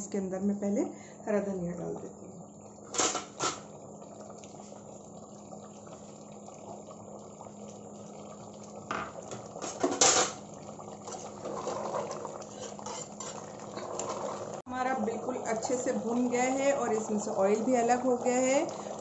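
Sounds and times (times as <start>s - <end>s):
stew simmering and bubbling: 1.8s - 19.0s
spoon scraping and stirring: 11.0s - 14.2s.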